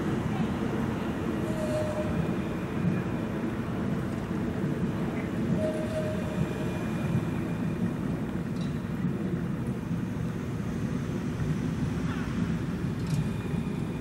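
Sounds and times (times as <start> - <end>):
street traffic: 0.0 - 14.0
tram rumbling: 0.0 - 14.0.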